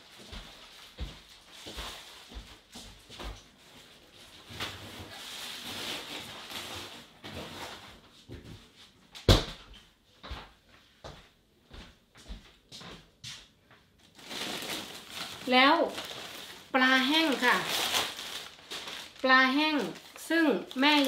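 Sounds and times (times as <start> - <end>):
handling rustling: 14.0 - 21.0.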